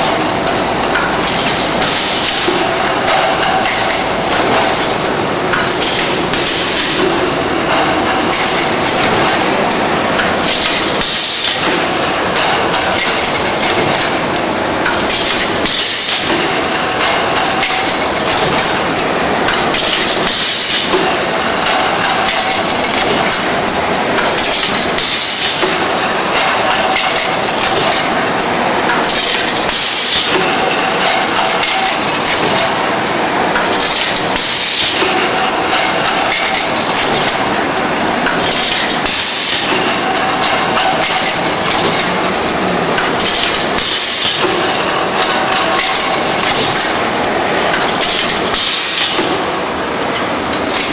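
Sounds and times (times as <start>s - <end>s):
machine hiss and clack: 0.0s - 50.9s
packaging machine clattering: 0.9s - 50.9s.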